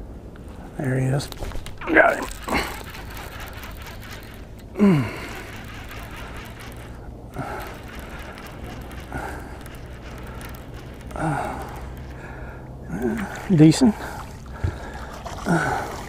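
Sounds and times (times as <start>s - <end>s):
fishing reel reeling: 1.8s - 14.2s.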